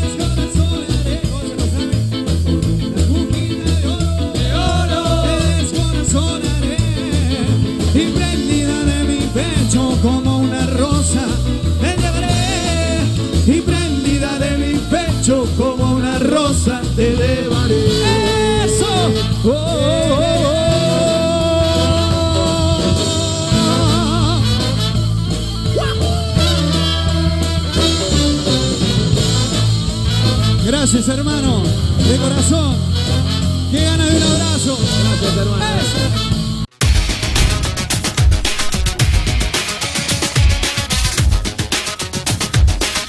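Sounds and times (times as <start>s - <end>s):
man singing: 0.0s - 25.0s, 25.6s - 28.7s, 30.2s - 36.2s
live band playing: 0.0s - 43.0s.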